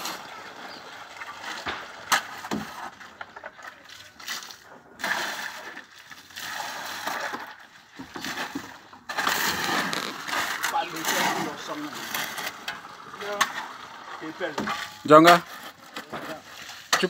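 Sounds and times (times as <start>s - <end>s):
shovel scraping wet concrete: 0.0s - 17.0s
water splashing onto gravel: 0.0s - 17.0s.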